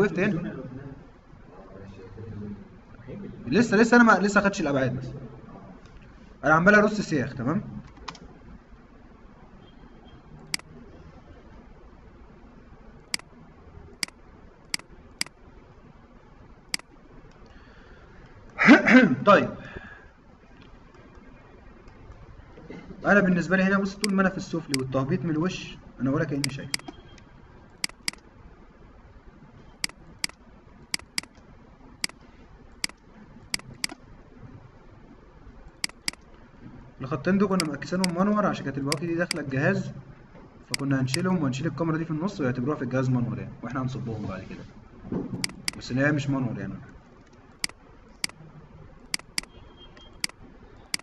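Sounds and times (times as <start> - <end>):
faint room hiss: 0.0 - 51.0
computer mouse clicks: 7.8 - 8.3, 10.4 - 10.8, 13.1 - 13.3, 14.0 - 15.4, 16.7 - 17.6, 24.0 - 24.9, 26.4 - 28.3, 29.8 - 32.2, 32.8 - 34.0, 35.7 - 36.4, 37.6 - 38.2, 38.9 - 39.5, 45.4 - 45.9, 46.9 - 48.4, 49.0 - 51.0
mouse button clicking: 26.4 - 27.2, 27.8 - 28.2, 29.8 - 31.4, 32.8 - 34.0, 35.8 - 36.2, 37.6 - 38.2, 45.4 - 45.8, 49.1 - 51.0.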